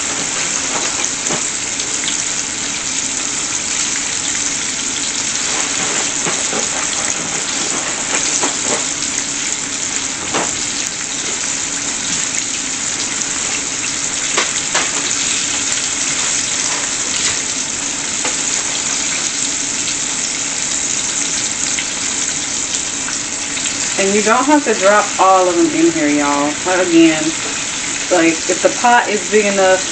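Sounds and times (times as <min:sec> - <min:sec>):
oil pops and crackles: 0:00.0 - 0:24.0
chicken deep-frying in oil: 0:00.0 - 0:29.9.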